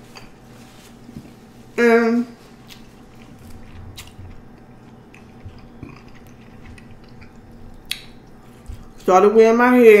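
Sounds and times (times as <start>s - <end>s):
person chewing food: 2.5s - 9.1s.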